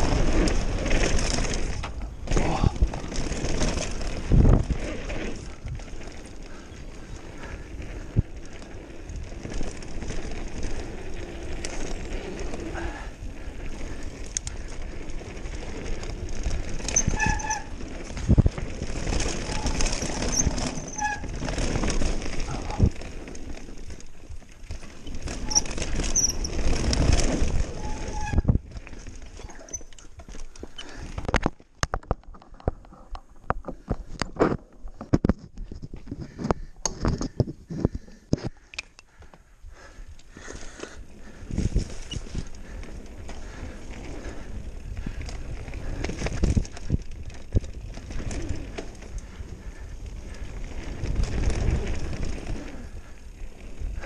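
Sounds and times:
bike rattling over bumps: 0.0s - 54.0s
wind and tyre rushing: 0.0s - 54.0s.

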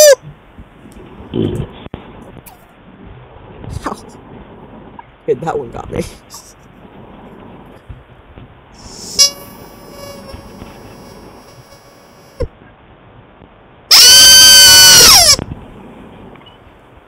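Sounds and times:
rubber chicken squealing: 0.0s - 0.2s, 13.9s - 15.4s.

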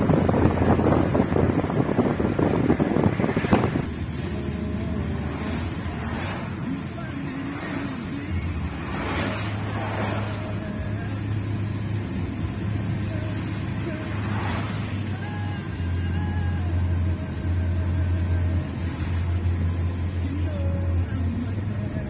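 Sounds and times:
wind buffeting microphone: 0.0s - 4.2s
car engine hum: 0.0s - 22.0s.

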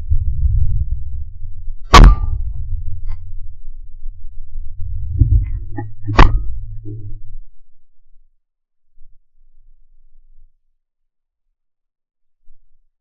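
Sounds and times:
wind rumble on microphone: 0.0s - 8.2s
shotgun shots: 2.0s - 2.4s.

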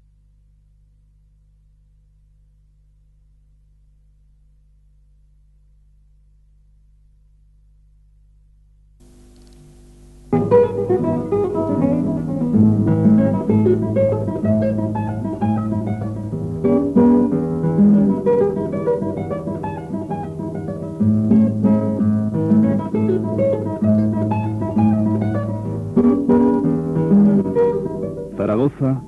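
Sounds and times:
flamenco acoustic guitar: 10.3s - 29.0s.

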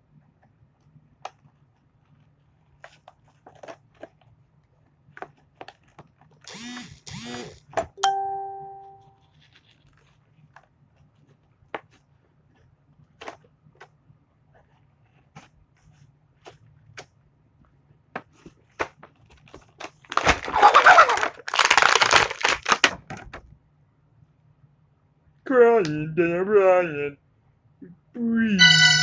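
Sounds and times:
plastic packaging crinkling and clicking: 1.2s - 6.5s, 9.2s - 14.0s, 18.2s - 23.5s
squeaky noise: 28.6s - 29.0s.

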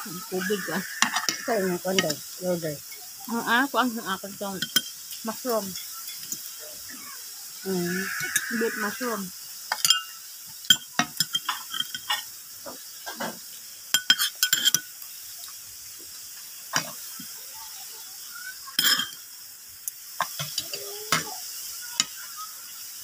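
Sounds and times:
cutlery clinking on a plate: 1.0s - 2.2s, 9.7s - 12.3s, 14.0s - 14.9s, 18.8s - 19.2s.

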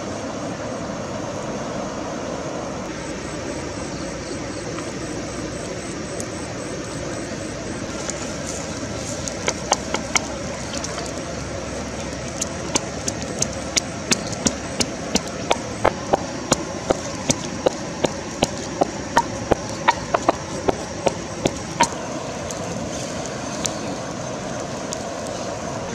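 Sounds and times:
background rush: 7.6s - 25.9s
pestle pounding in wooden mortar: 9.3s - 11.2s, 12.1s - 22.0s.

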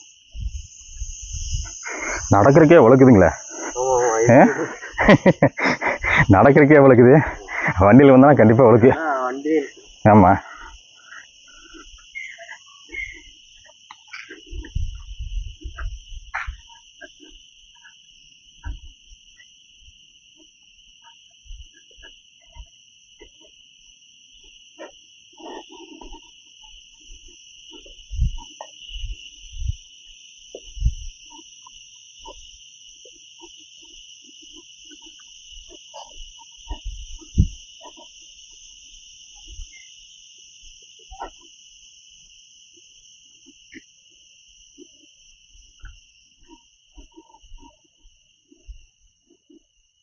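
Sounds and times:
insects droning: 0.0s - 50.0s
dull low thumps: 28.1s - 29.8s.

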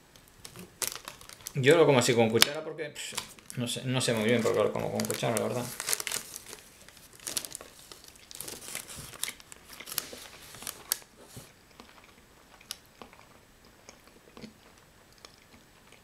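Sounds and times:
baking paper crinkling: 0.1s - 11.5s
person chewing: 5.9s - 16.0s.

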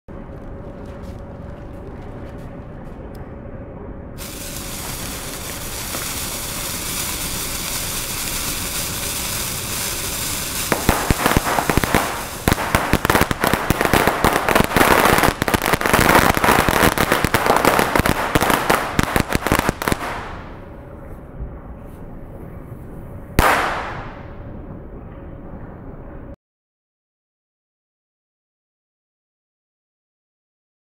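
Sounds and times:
lit fuse hissing: 4.2s - 16.7s
firecrackers banging: 4.2s - 20.6s, 23.4s - 24.3s.

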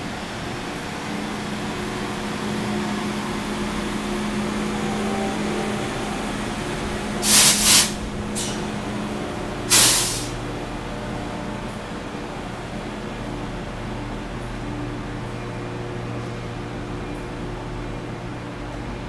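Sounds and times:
train hum and rumble: 0.0s - 19.0s
air brakes hissing: 7.2s - 8.8s, 9.7s - 10.4s.

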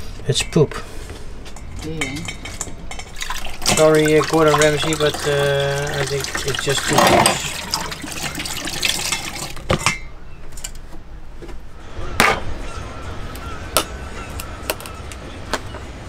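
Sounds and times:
tap water running: 2.9s - 9.8s.

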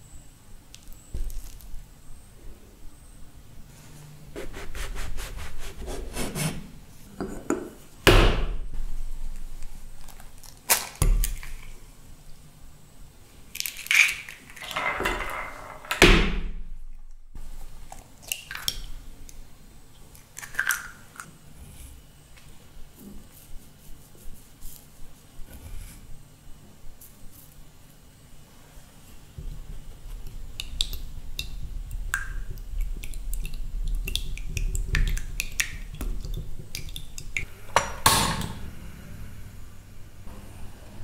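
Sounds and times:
eggs cracking: 9.3s - 11.8s, 13.5s - 14.8s, 17.8s - 19.4s, 20.0s - 21.3s, 29.7s - 37.5s.

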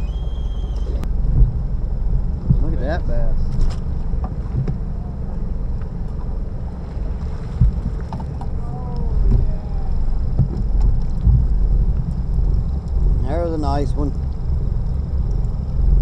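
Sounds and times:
faint high whine: 0.0s - 1.2s
boat motor rumble: 0.0s - 16.0s
wind on microphone: 7.0s - 16.0s.

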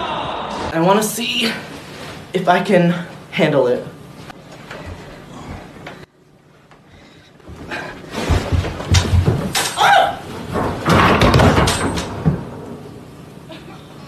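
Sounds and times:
person tumbling down stairs: 4.5s - 6.1s, 6.8s - 12.6s
person crying out: 9.8s - 10.3s.

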